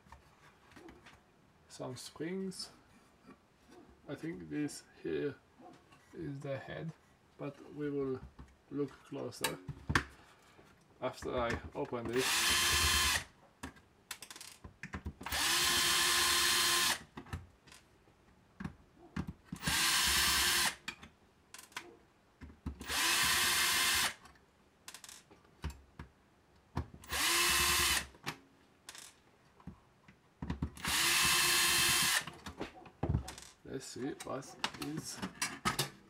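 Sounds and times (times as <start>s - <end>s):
electric screwdriver running: 12.2s - 13.2s, 15.3s - 17.0s, 22.8s - 24.2s, 27.1s - 28.1s, 30.8s - 32.3s.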